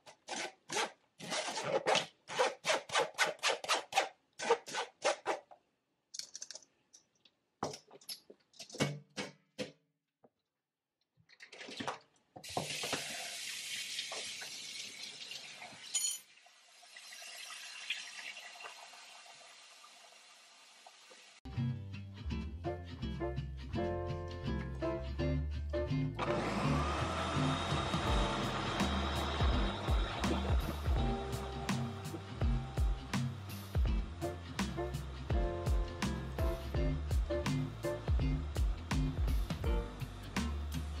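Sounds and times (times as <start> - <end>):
kitchen tap running: 11.4 - 21.4.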